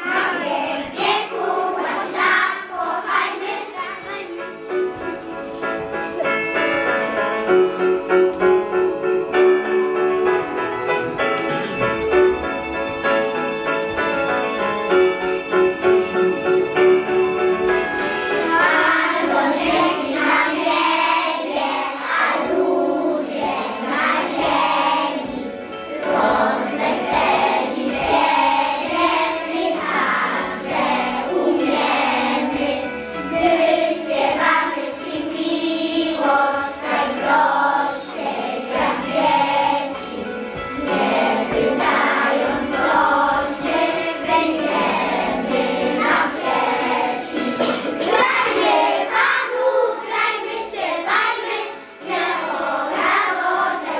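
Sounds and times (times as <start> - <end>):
children singing in chorus: 0.0 - 4.3, 18.4 - 53.9
low musical accompaniment: 0.0 - 53.9.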